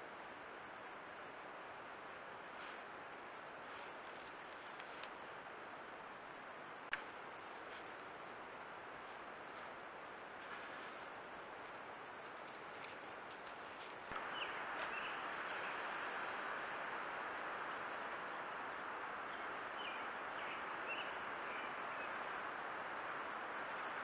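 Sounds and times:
microphone hiss: 0.0s - 24.0s
faint bird chirps: 14.2s - 15.9s.

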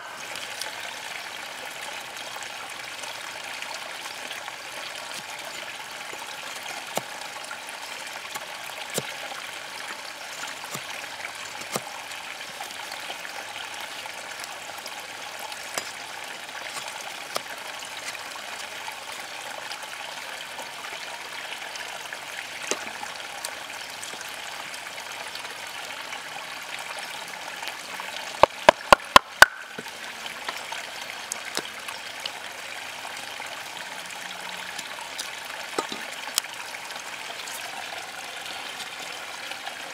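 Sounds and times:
flowing water: 0.0s - 39.9s
knife cutting wooden stick: 11.6s - 11.9s.

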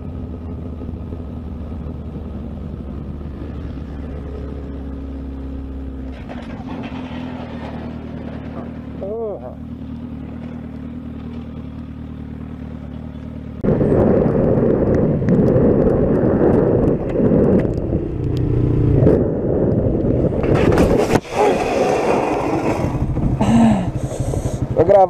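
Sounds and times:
motorcycle engine running: 0.0s - 6.3s, 8.2s - 20.8s, 21.6s - 25.0s
motorcycle riding on wet road: 0.0s - 25.0s
motorcycle sliding on asphalt: 3.3s - 25.0s
wind on microphone: 13.6s - 23.5s.

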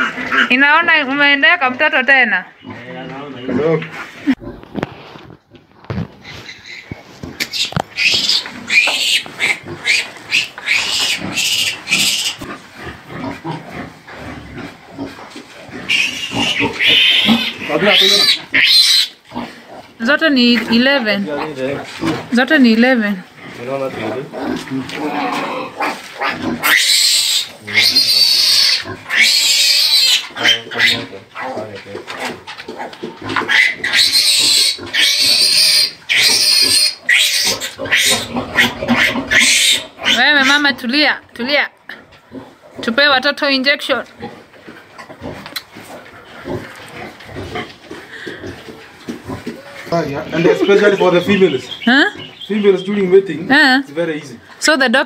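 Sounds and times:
piglet squealing: 0.0s - 0.8s, 6.2s - 12.5s, 15.8s - 19.2s, 25.0s - 31.6s, 32.8s - 40.7s, 49.4s - 52.8s.

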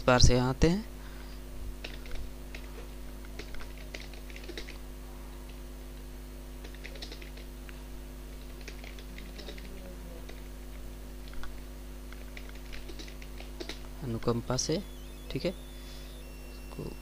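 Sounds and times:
low electrical hum: 0.0s - 17.0s
keyboard typing: 1.8s - 4.8s, 6.6s - 7.5s, 8.3s - 10.6s, 11.2s - 15.5s.

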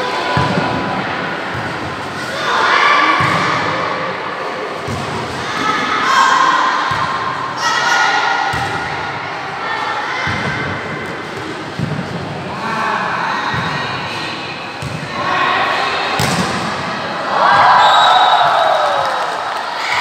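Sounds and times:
volleyball being struck: 16.1s - 16.8s.

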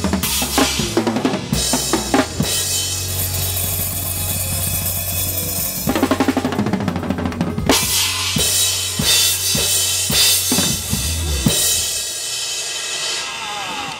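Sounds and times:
crash cymbal ringing: 7.7s - 13.9s.

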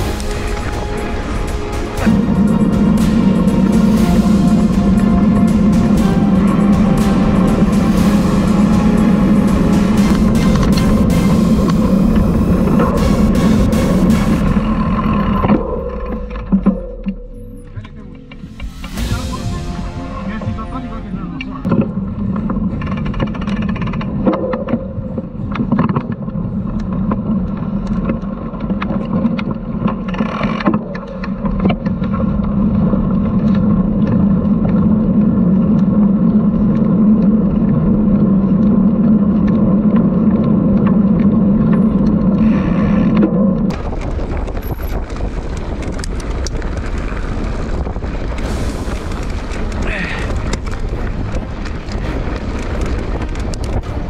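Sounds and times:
wind on microphone: 31.2s - 54.0s
stones and bike rattling: 43.1s - 54.0s
bike tyre hum on gravel: 43.7s - 54.0s.

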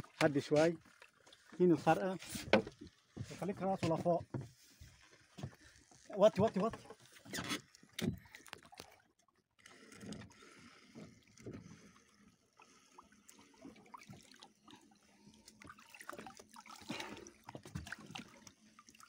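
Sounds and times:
water sloshing and trickling: 0.0s - 19.0s.

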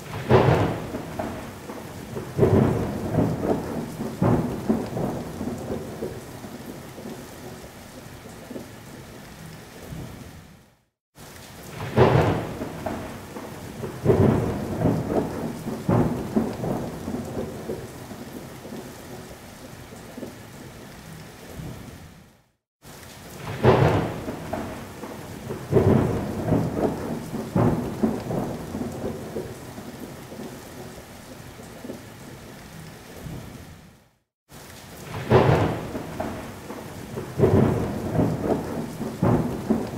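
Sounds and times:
rolling thunder: 0.0s - 7.6s, 11.7s - 18.8s, 23.4s - 30.5s, 35.0s - 39.9s
steady rain: 0.0s - 39.9s.

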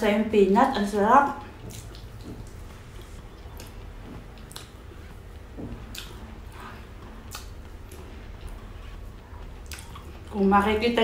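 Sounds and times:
low steady hum: 0.0s - 11.0s
chewing food: 1.4s - 10.5s.

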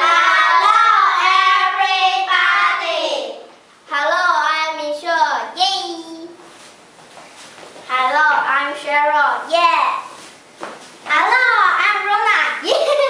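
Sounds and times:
girls singing together: 0.0s - 3.6s.

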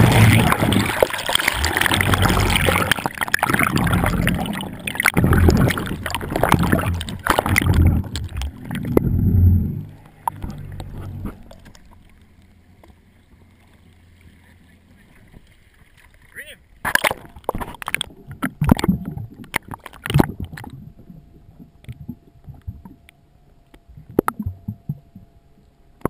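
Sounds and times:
knocks and splashes against camera: 0.0s - 12.0s, 16.8s - 20.7s
seawater churning and sloshing: 0.0s - 22.8s
faint lapping water: 0.0s - 26.0s.

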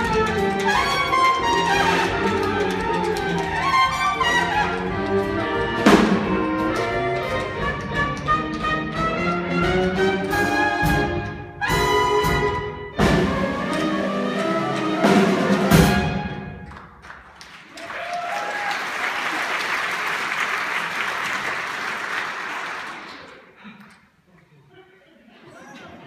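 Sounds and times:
audience applauding: 0.0s - 9.0s, 16.6s - 23.6s
orchestra with brass playing: 0.0s - 16.7s.

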